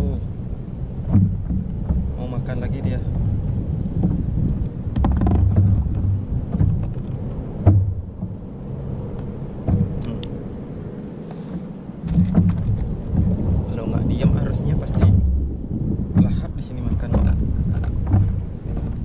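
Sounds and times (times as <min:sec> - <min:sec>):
wind buffeting microphone: 0:00.0 - 0:19.0
sharp knocks: 0:01.0 - 0:02.2, 0:04.0 - 0:08.4, 0:09.6 - 0:10.0, 0:11.5 - 0:13.4, 0:14.2 - 0:15.5, 0:16.1 - 0:19.0.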